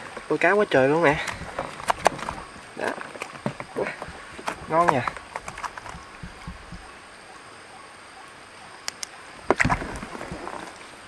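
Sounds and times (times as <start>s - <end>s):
net ticks and rustles: 0.0s - 7.0s
sharp clicks: 1.0s - 6.9s, 8.8s - 9.8s.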